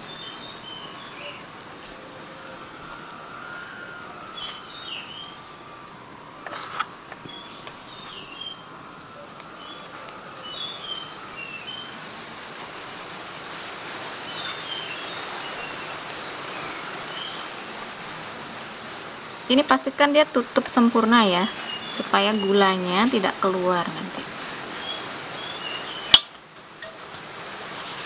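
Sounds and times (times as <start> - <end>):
wind noise: 0.0 - 10.4
small birds chirping: 0.0 - 18.2, 20.8 - 23.6, 24.7 - 26.4.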